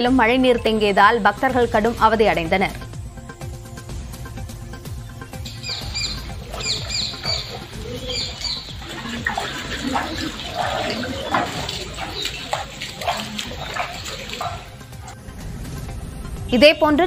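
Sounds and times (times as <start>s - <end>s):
high bird chirps: 5.3s - 12.9s
water splashing and sloshing: 5.4s - 15.2s.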